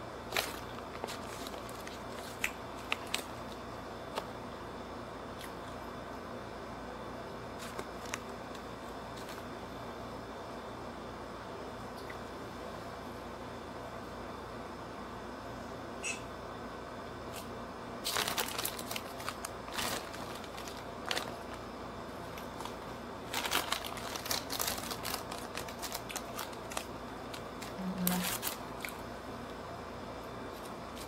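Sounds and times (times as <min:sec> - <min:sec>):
steady background hum: 0:00.0 - 0:31.0
food wrapper crinkling: 0:00.3 - 0:04.3, 0:07.6 - 0:09.5, 0:17.3 - 0:21.7, 0:22.3 - 0:29.1.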